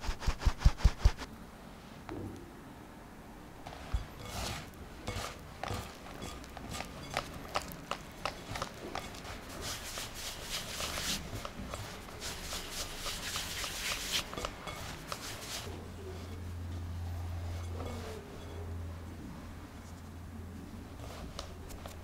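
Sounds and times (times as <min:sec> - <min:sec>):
hands rubbing flour mixture: 0:00.0 - 0:01.3, 0:03.6 - 0:18.6, 0:20.8 - 0:22.0
fingers tapping glass bowl: 0:03.9 - 0:16.4.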